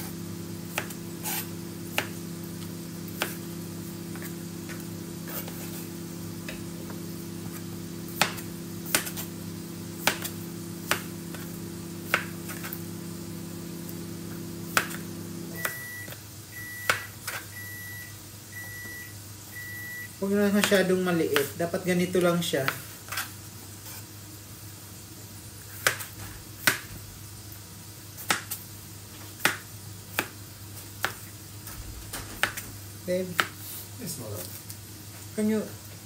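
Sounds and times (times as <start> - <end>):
kitchen appliance humming: 0.0 - 22.8
electronic beeps: 15.6 - 16.9.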